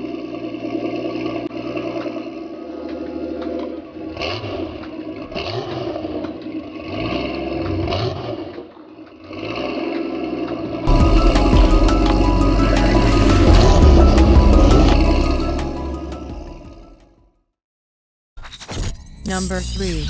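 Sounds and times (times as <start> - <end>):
car engine revving: 0.7 - 17.1
loud music: 10.9 - 17.1.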